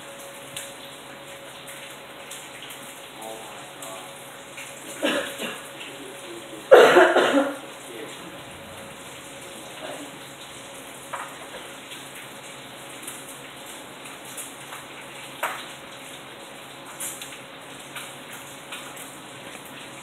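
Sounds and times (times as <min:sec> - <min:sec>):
heavy rain hissing: 0:00.0 - 0:14.4
raindrops tapping: 0:00.0 - 0:20.0.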